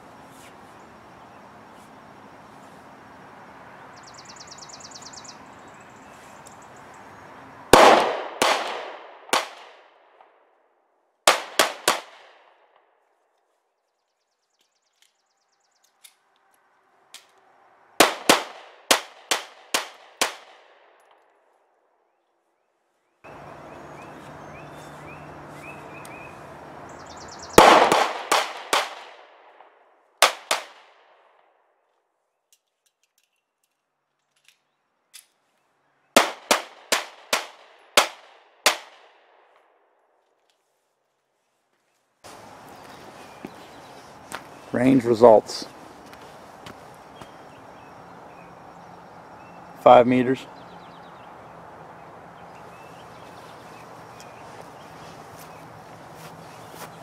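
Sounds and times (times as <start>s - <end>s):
pistol shots with echo: 7.7s - 10.3s, 11.3s - 12.8s, 18.0s - 21.0s, 27.6s - 31.1s, 36.2s - 39.3s.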